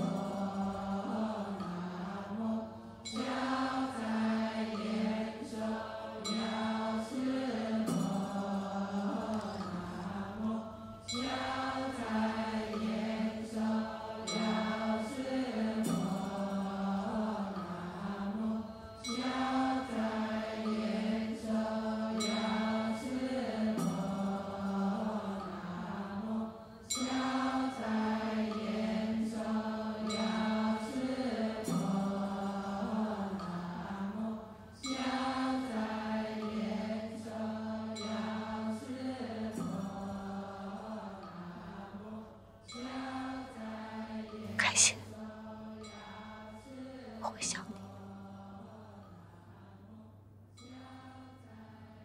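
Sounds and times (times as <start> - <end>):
person chanting melodically: 37.9 - 45.4, 46.1 - 49.4.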